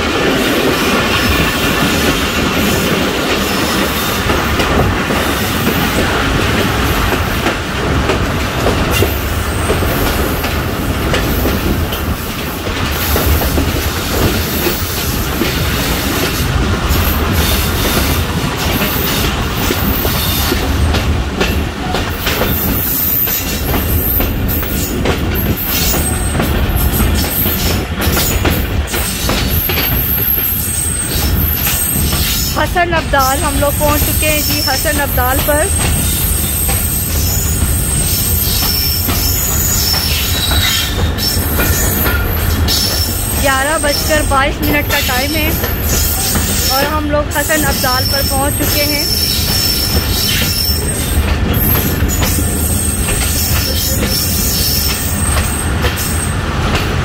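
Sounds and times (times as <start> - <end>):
train carriage rumbling: 0.0 - 57.0
wheels clattering over rail joints: 0.0 - 57.0
high wheel squeals: 35.7 - 44.1.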